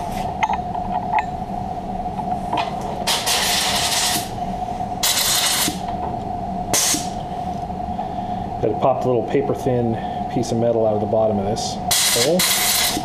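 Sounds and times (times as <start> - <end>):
compressed air blasts hissing: 6.7 - 7.2.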